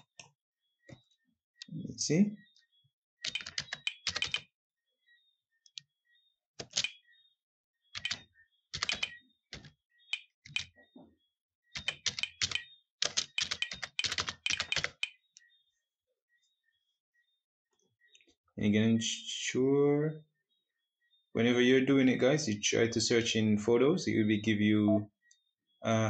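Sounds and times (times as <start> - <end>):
typing on keyboard: 3.2 - 4.5, 6.6 - 7.0, 7.9 - 10.8, 11.8 - 15.2.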